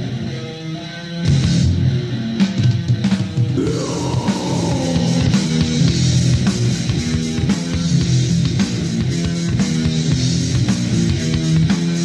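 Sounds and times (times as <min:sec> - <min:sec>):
death metal guitars and drums: 0:01.3 - 0:12.0.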